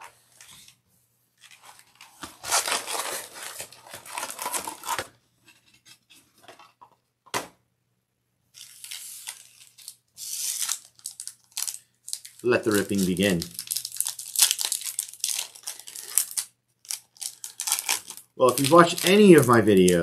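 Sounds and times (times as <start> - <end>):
card pack wrappers crinkling: 1.4 - 5.1, 8.6 - 20.0.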